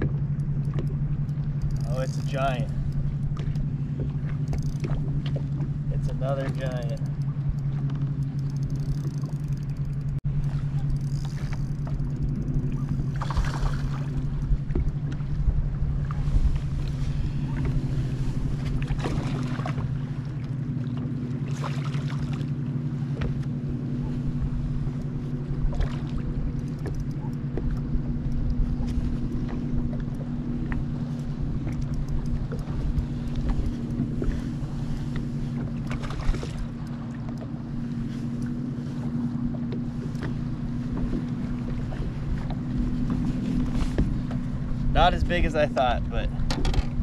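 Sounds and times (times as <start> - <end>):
boat motor humming: 0.0 - 47.0
wind on microphone: 10.3 - 20.3.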